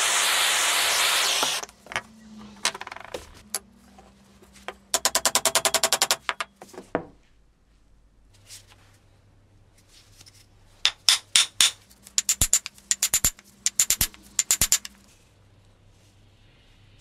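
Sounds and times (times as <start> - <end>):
hammer striking steel: 10.9 - 14.9.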